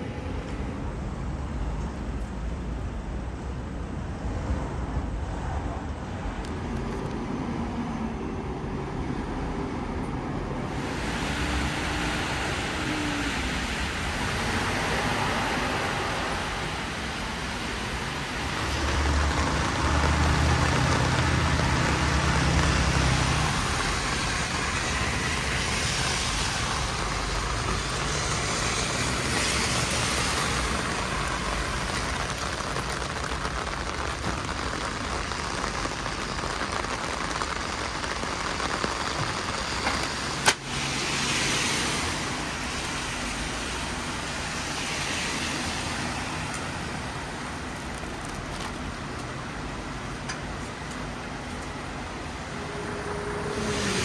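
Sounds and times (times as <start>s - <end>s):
steady traffic hiss: 0.0s - 54.0s
tyres hissing on wet street: 0.0s - 54.0s
low engine rumble: 10.6s - 44.0s.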